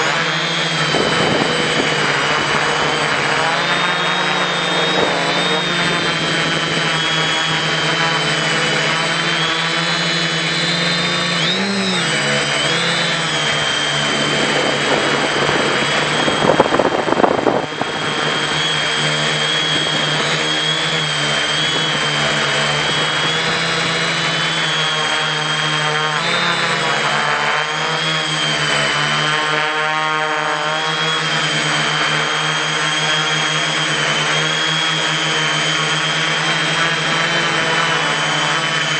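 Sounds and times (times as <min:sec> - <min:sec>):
rush of noise: 0:00.0 - 0:09.6, 0:10.2 - 0:25.6
drone propellers whirring: 0:00.0 - 0:38.9.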